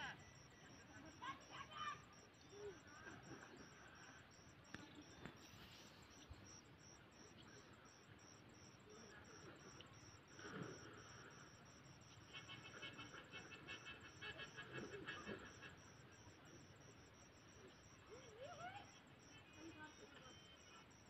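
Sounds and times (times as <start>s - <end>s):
cricket chirping: 0.0s - 21.0s.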